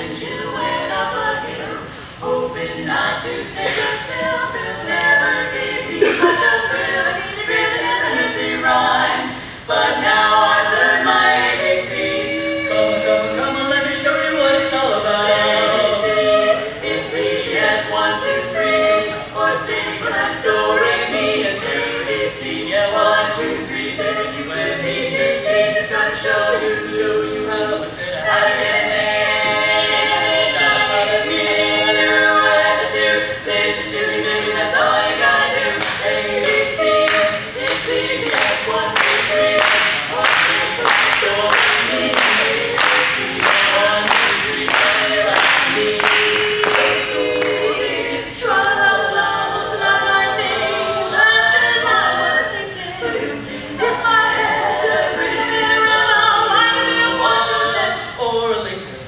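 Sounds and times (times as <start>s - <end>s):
women singing a cappella harmony: 0.0s - 59.0s
people clapping: 35.8s - 47.6s.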